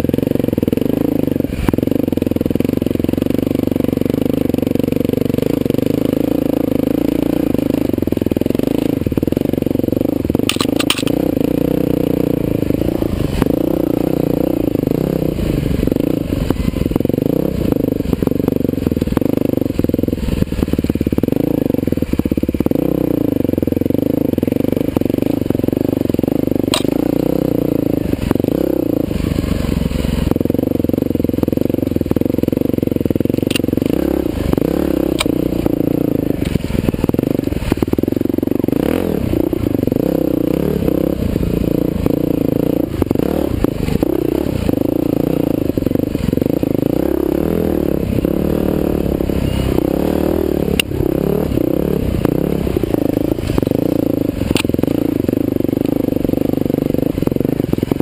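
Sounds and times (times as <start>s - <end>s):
dirt bike engine revving: 0.0s - 58.0s
sharp clicks: 10.4s - 11.3s, 26.7s - 27.0s, 35.1s - 35.4s.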